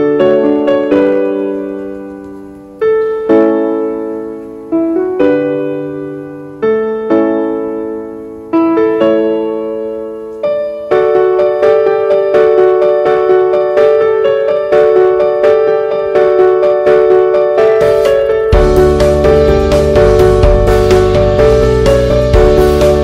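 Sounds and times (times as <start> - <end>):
slow piano chords: 0.0 - 23.0.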